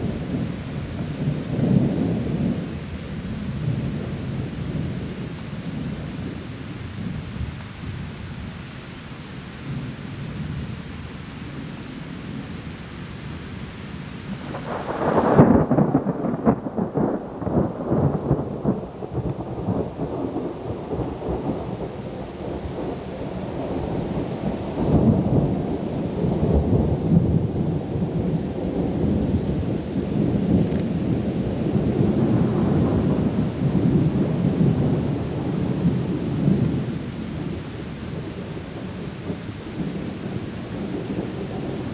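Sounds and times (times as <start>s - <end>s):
rumbling thunder: 0.0s - 7.6s, 14.3s - 41.9s
rain: 0.0s - 41.9s
thunder crack: 14.4s - 23.0s, 23.6s - 37.5s.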